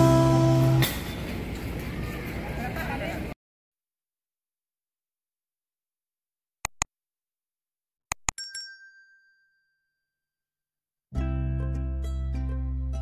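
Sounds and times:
mouse clicks: 0:06.6 - 0:06.9, 0:08.1 - 0:08.4
notification bell ding: 0:08.3 - 0:10.0.

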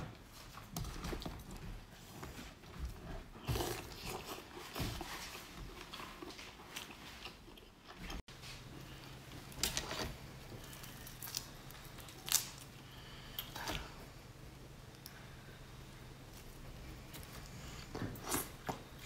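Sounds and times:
wet crackly chewing: 0:02.2 - 0:08.3, 0:08.9 - 0:14.0
prawn shell cracking: 0:10.7 - 0:12.7.

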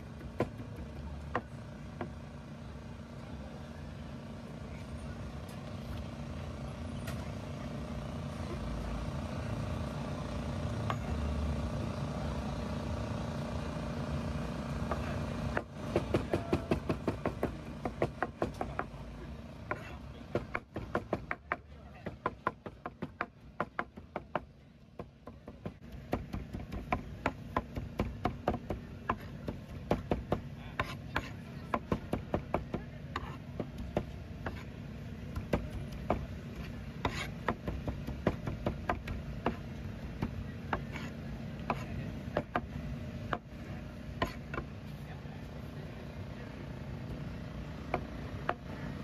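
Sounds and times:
cleaver chopping on cutting board: 0:19.7 - 0:24.4, 0:25.0 - 0:34.7, 0:35.3 - 0:39.6, 0:40.2 - 0:42.7, 0:44.2 - 0:44.7.

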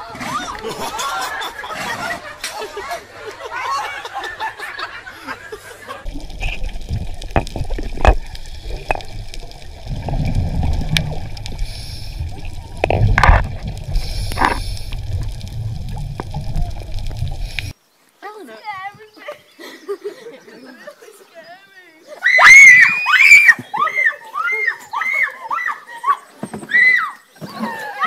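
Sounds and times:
exhaled bubbles bubbling: 0:06.0 - 0:17.7
underwater low rumble: 0:06.0 - 0:17.7
underwater clicks: 0:06.1 - 0:17.7.

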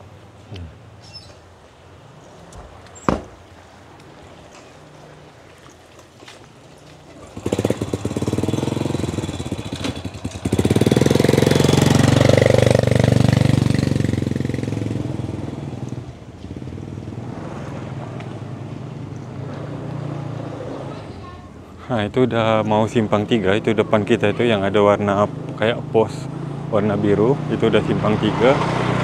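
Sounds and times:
motorcycle engine passing: 0:07.0 - 0:29.0.

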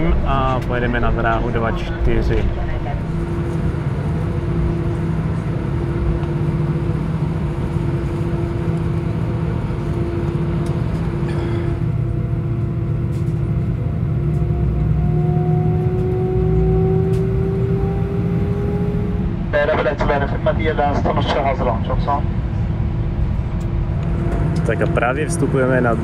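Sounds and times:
jet engines whining: 0:00.0 - 0:26.0.

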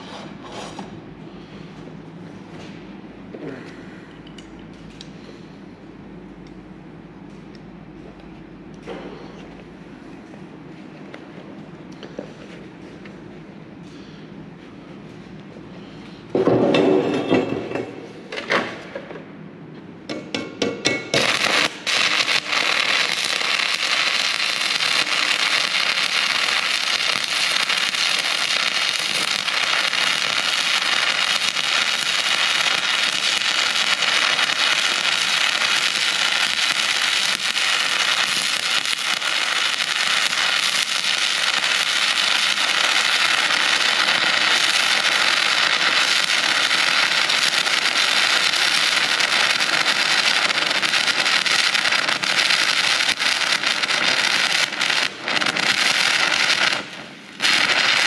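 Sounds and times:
welding arc crackling: 0:20.1 - 0:58.0.

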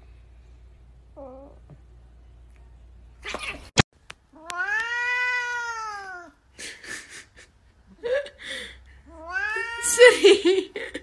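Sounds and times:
cat meowing: 0:04.4 - 0:06.4, 0:09.1 - 0:09.9.

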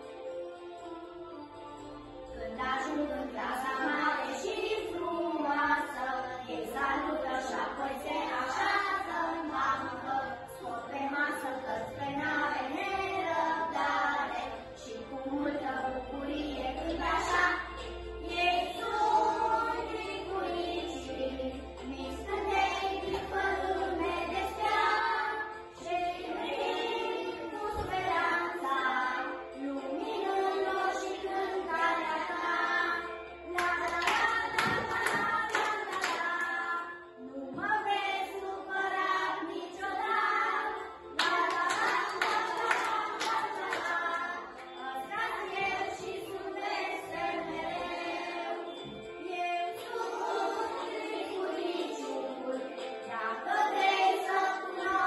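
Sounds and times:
children singing: 0:00.0 - 0:55.0
children clapping hands: 0:33.6 - 0:36.7, 0:41.2 - 0:44.8.

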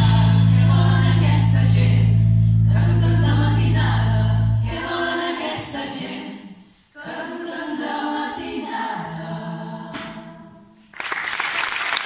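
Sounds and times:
choir singing: 0:00.0 - 0:02.1, 0:02.7 - 0:10.8
audience applauding: 0:10.9 - 0:12.0.

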